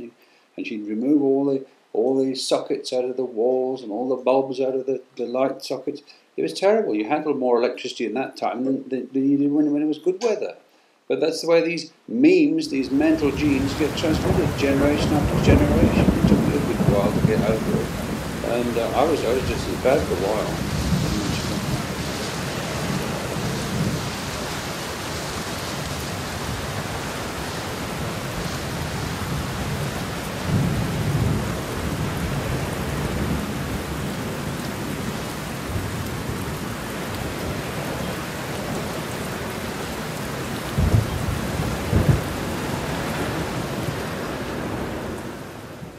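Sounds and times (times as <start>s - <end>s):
steady rain: 0.0s - 45.9s
thunder rumble: 12.8s - 35.0s, 40.7s - 45.2s
sharp thunder booms: 12.9s - 24.2s, 40.8s - 42.4s.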